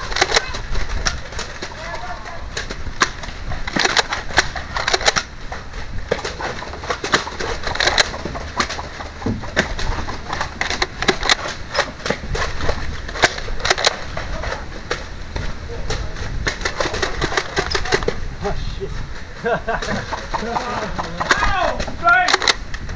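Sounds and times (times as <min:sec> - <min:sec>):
wind rumble on microphone: 0:22.6 - 0:22.9.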